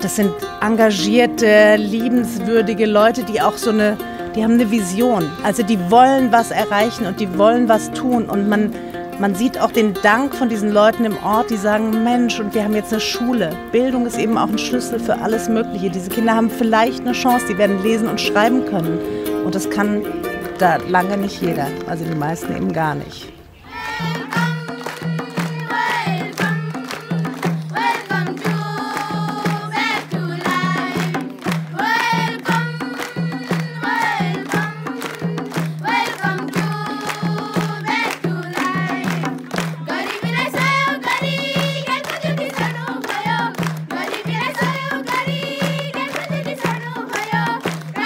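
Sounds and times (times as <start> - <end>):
girls singing folk song: 0.0 - 21.2, 23.6 - 48.0
hand drums beating: 0.0 - 23.3, 24.0 - 48.0
hand clapping: 16.2 - 22.8, 24.2 - 48.0.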